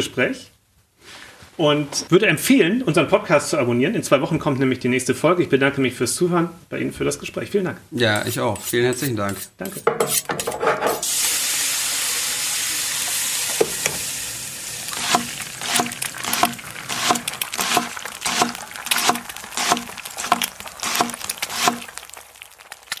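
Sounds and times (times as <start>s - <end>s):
food sizzling in a pan: 10.1s - 23.0s
knife chopping on cutting board: 15.0s - 21.8s.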